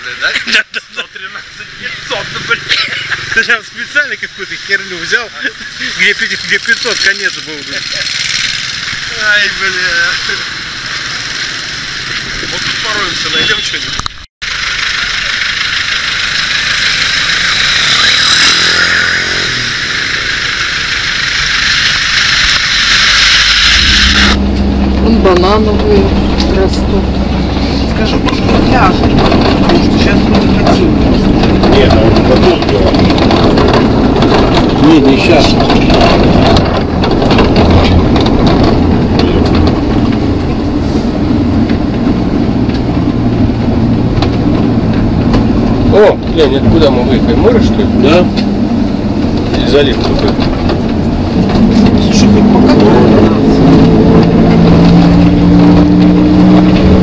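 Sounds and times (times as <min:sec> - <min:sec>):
engine hum: 0:00.0 - 0:57.0
road and tyre rumble: 0:00.0 - 0:57.0
street traffic noise: 0:00.0 - 0:57.0
motorbike passing close: 0:14.5 - 0:57.0.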